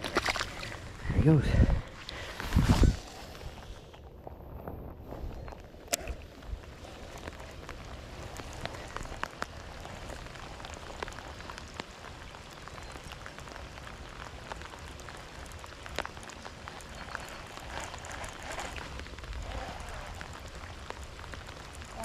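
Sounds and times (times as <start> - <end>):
water pattering and trickling: 0.0 - 22.0
water drips: 5.3 - 22.0.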